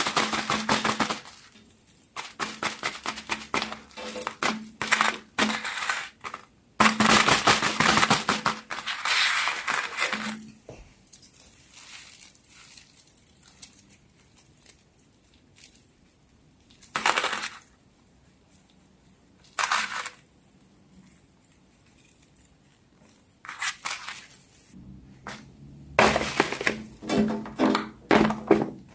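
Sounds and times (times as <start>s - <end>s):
squishy toys rustling on paper: 7.4s - 10.4s, 11.5s - 15.6s.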